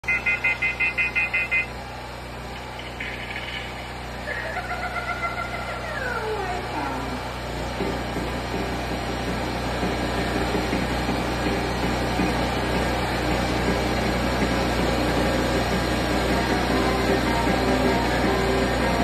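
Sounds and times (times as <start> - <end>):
carnival ride mechanical hum: 0.0 - 19.0.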